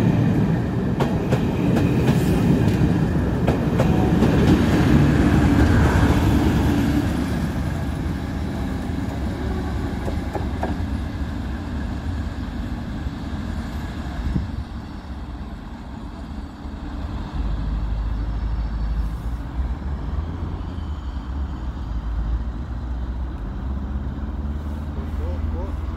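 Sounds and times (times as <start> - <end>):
diesel locomotive engine rumble: 0.0 - 25.9.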